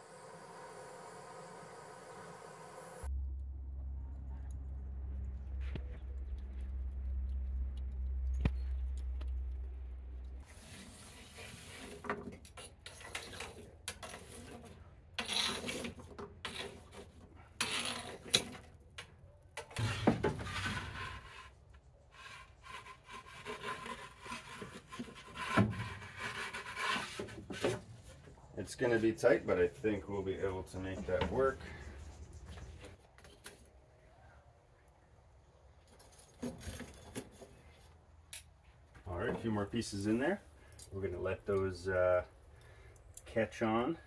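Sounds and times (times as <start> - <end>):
low steady rumble: 2.0 - 10.5
charcoal clinking and scraping: 10.4 - 21.5.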